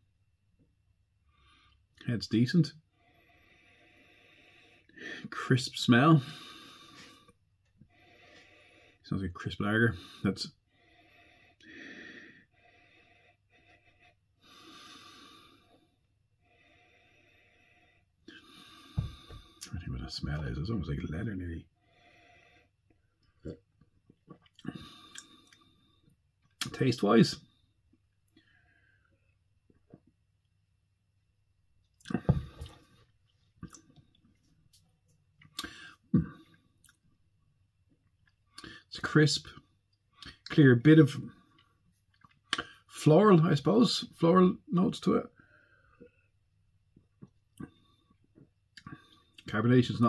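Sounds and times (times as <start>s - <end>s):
man swallowing and lip smacking: 23.3s - 25.6s, 31.9s - 32.9s, 33.6s - 34.4s
person gulping drink: 23.3s - 25.6s, 32.0s - 33.0s.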